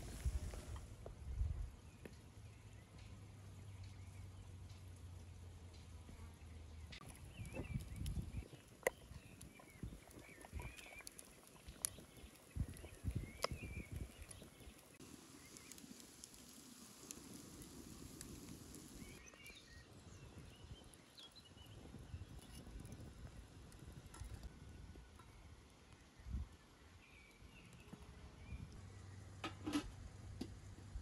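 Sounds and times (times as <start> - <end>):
steam hissing from pot: 0.0 - 0.8, 9.5 - 19.2
small birds chirping: 6.1 - 29.4.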